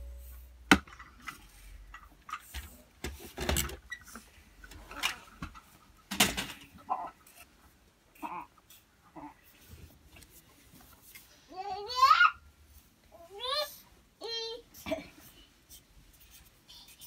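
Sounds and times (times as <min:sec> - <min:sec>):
marker scratching on paper: 0:15.7 - 0:17.0.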